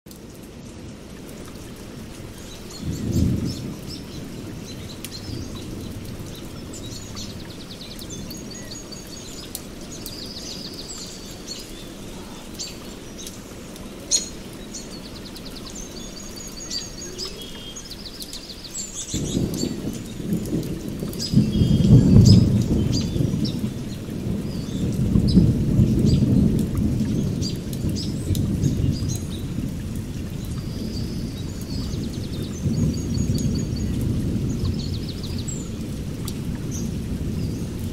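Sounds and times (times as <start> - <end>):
steady rain: 0.1 - 37.9
small birds chirping: 1.3 - 29.6, 30.2 - 37.9
thunder rumbling: 2.0 - 8.8, 19.0 - 37.9.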